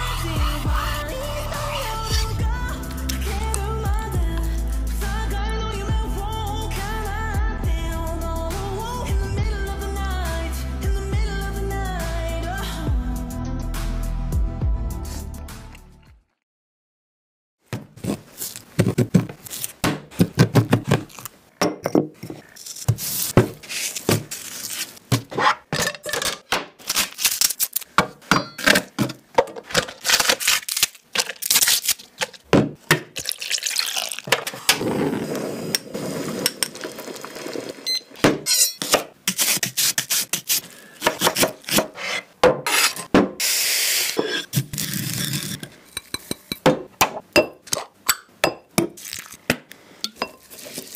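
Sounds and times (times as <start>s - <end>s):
food handling rustling: 17.9s - 21.4s, 22.2s - 27.9s, 35.9s - 38.2s, 50.3s - 50.9s.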